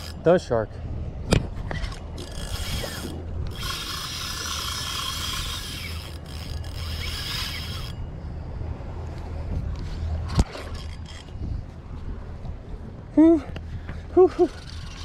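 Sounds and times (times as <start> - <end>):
fishing reel gears whirring: 0.0 - 0.5, 1.7 - 8.0, 10.4 - 11.4, 14.3 - 15.0.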